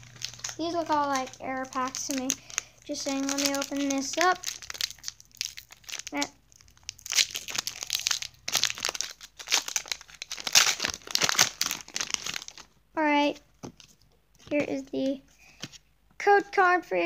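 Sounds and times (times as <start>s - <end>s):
foil wrapper crinkling and tearing: 0.0s - 12.8s.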